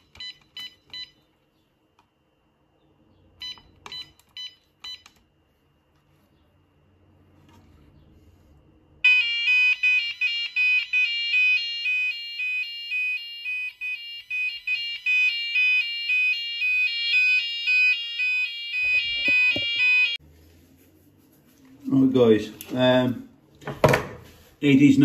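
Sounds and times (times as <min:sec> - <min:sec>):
two-tone warbling alarm: 0:09.0 - 0:20.2.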